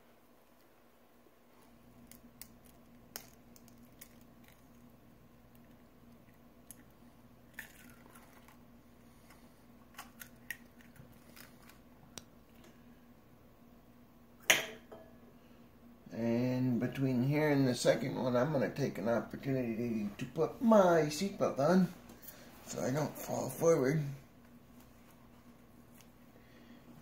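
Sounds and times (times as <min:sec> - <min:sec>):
eggshell crunching: 0:01.8 - 0:08.7, 0:09.8 - 0:12.4
egg cracking against glass: 0:02.0 - 0:04.8, 0:07.5 - 0:08.5.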